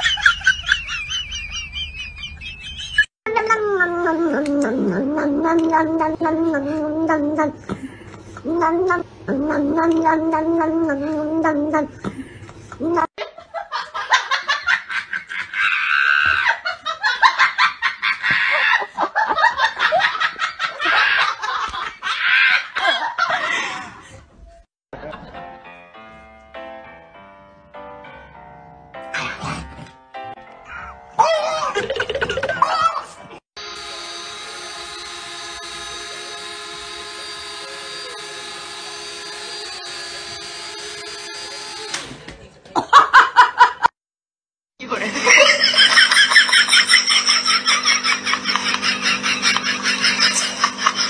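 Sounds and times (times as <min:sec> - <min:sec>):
person laughing hard: 0:00.0 - 0:03.1, 0:12.8 - 0:24.0, 0:30.8 - 0:33.3, 0:44.9 - 0:51.0
toy drone whining: 0:33.6 - 0:42.0.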